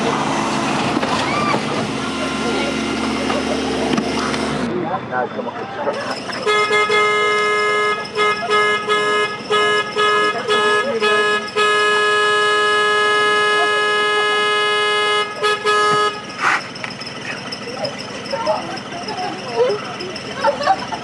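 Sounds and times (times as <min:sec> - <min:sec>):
miniature locomotive horn toots: 0:06.1 - 0:18.1.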